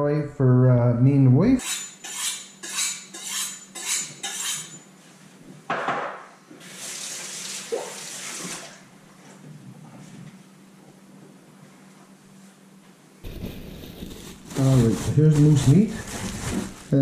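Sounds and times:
knife scraping on sharpener: 1.6 - 4.8.

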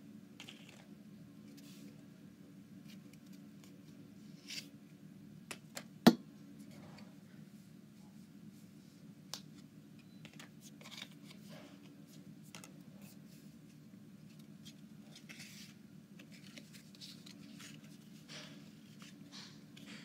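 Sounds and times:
low steady hum: 0.0 - 20.0
trading cards rustling: 14.3 - 20.0.

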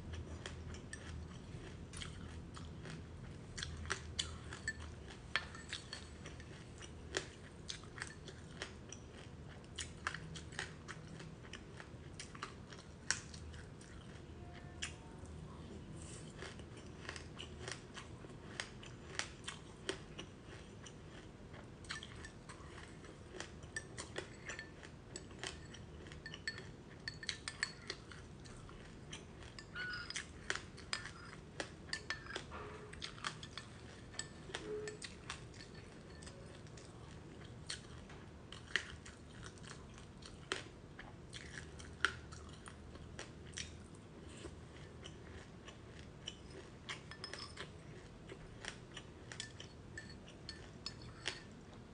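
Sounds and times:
chewing crunchy seeds: 0.0 - 51.9
metal spoon scraping glass bowl: 29.6 - 30.3, 47.1 - 47.6.

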